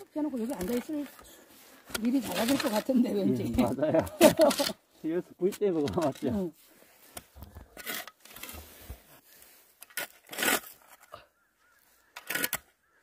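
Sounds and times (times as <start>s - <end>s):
shovel scraping soil: 1.9s - 3.3s, 7.1s - 11.1s, 12.1s - 12.7s.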